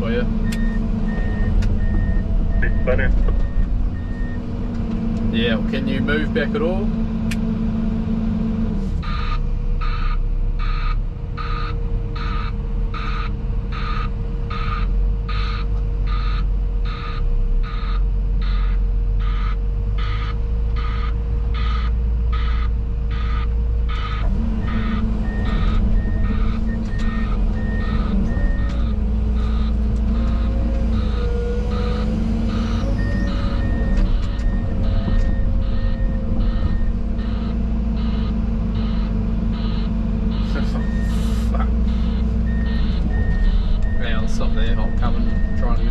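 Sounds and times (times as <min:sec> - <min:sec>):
diesel engine rumble: 0:00.0 - 0:45.9
reversing alarm beeps: 0:00.4 - 0:04.5, 0:09.0 - 0:45.9
higher-pitched beep: 0:24.6 - 0:41.3, 0:41.9 - 0:45.9.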